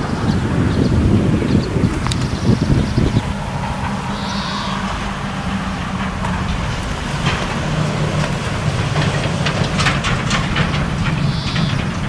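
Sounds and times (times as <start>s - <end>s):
truck engine drone: 0.0s - 12.0s.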